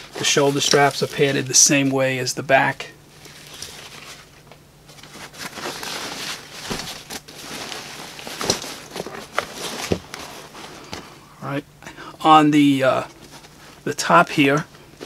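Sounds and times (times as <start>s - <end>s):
fabric rustling: 3.1s - 11.1s.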